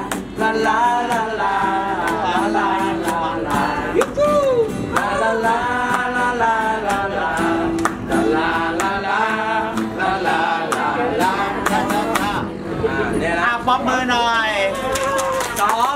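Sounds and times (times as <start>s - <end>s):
group singing in unison: 0.0s - 13.7s
hand clapping: 4.9s - 5.2s, 7.7s - 8.1s, 10.7s - 11.0s, 14.9s - 15.9s
man's voice leading: 12.8s - 14.8s.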